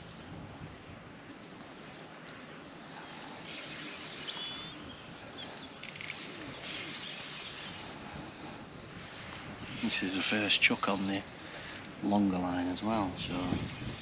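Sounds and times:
outdoor background noise: 0:00.0 - 0:14.0
small birds chirping: 0:00.0 - 0:14.0
dry rattle of clicks: 0:05.8 - 0:06.2.

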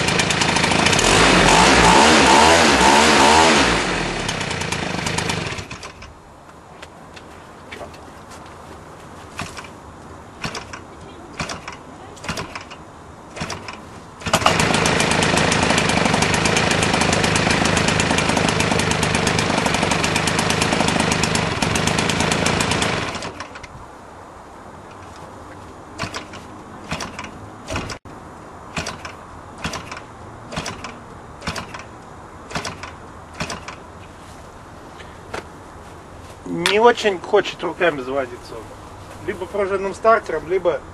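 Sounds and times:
propeller flipped by hand knocks: 0:09.3 - 0:09.8, 0:10.4 - 0:18.6, 0:26.0 - 0:28.0, 0:28.7 - 0:31.9, 0:32.5 - 0:33.9
model aircraft engine running: 0:14.3 - 0:23.3.

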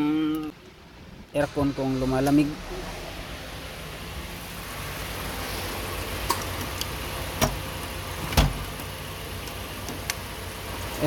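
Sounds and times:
car engine idling: 0:00.4 - 0:11.0.

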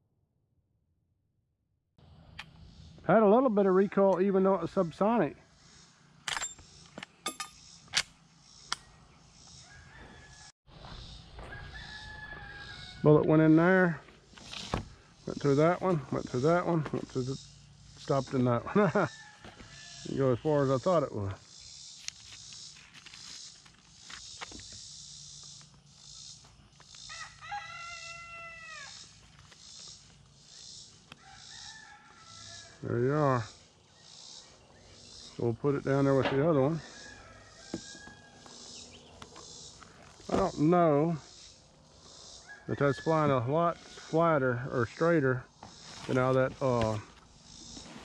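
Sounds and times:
outdoor background: 0:00.0 - 0:48.0
rooster crowing: 0:09.6 - 0:10.5, 0:11.4 - 0:13.3, 0:18.7 - 0:20.2, 0:27.0 - 0:29.1, 0:31.1 - 0:33.0, 0:36.4 - 0:38.9, 0:42.4 - 0:44.2.

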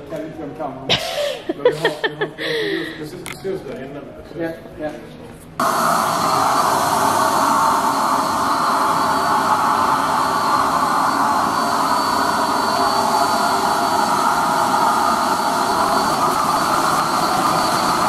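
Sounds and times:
spray machine rushing hiss: 0:05.6 - 0:18.0.

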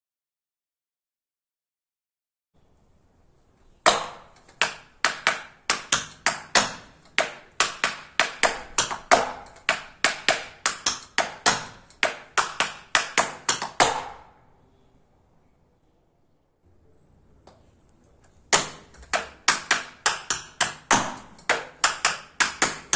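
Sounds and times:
tap shoes on dance board: 0:03.8 - 0:14.2, 0:18.5 - 0:22.9.

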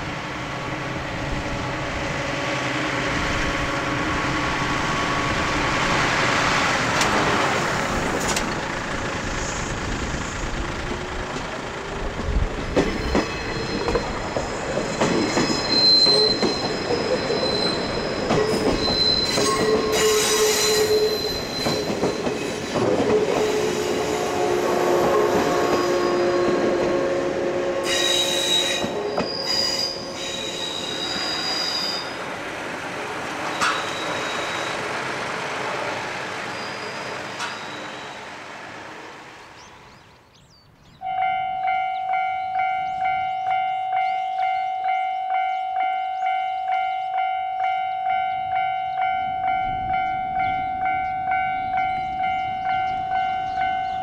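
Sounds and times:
train rolling clatter: 0:04.2 - 0:27.1, 0:27.9 - 0:39.8
clicks at rail joints: 0:08.2 - 0:08.6, 0:33.6 - 0:34.0
train wheels squealing on rail: 0:12.8 - 0:26.6, 0:27.8 - 0:32.3, 0:33.4 - 0:34.9, 0:36.4 - 0:38.4.

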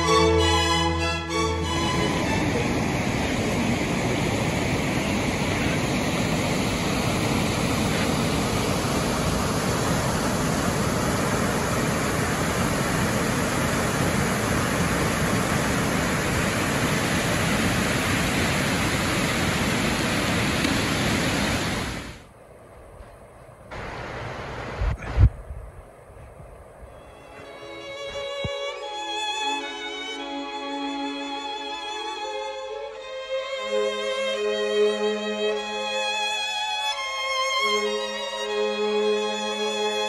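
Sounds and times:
waterfall rushing: 0:00.0 - 0:22.3.

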